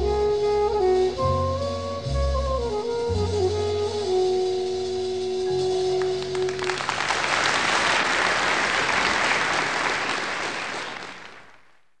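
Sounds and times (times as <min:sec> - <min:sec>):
held music note: 0:00.0 - 0:06.9
audience clapping: 0:06.0 - 0:12.0.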